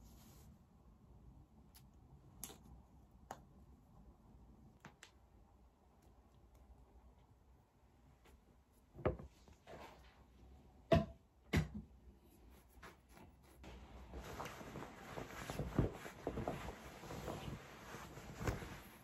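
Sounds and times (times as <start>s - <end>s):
fabric rustling: 13.6s - 19.0s.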